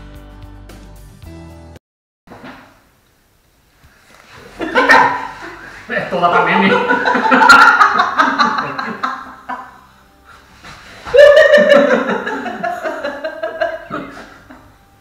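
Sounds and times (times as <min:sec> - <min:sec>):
woman laughing loudly: 0:04.6 - 0:05.7, 0:06.3 - 0:09.8, 0:11.1 - 0:14.7
people laughing hard: 0:04.6 - 0:09.8, 0:11.1 - 0:14.7.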